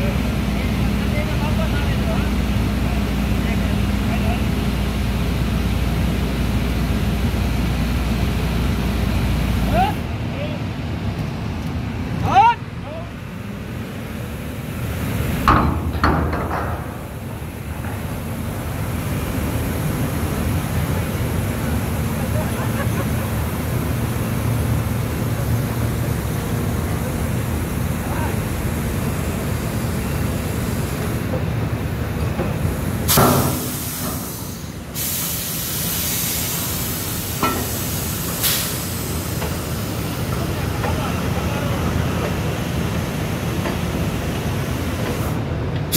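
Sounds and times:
drilling rig machinery rumble: 0:00.0 - 0:45.9
burst of hissing: 0:33.1 - 0:39.3.

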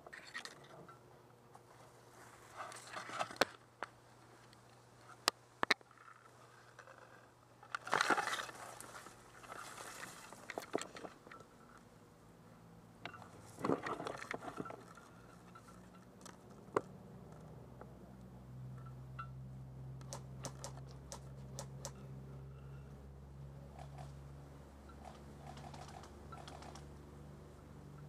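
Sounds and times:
dry grass rustling and crunching: 0:07.8 - 0:11.2
stalks snapping: 0:20.0 - 0:22.0.

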